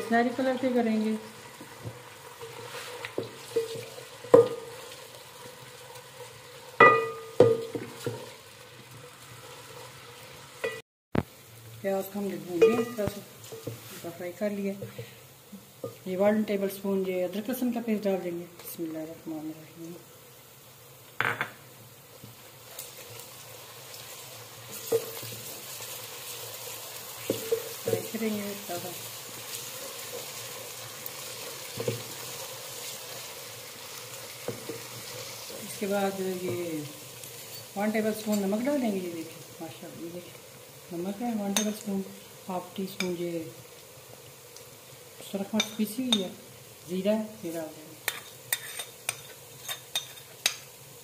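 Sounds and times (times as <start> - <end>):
onions sizzling: 0.0 - 51.0
spoon stirring in pot: 2.4 - 5.0, 48.0 - 50.7
spoon knocking against pot: 3.6 - 4.6, 6.8 - 7.9.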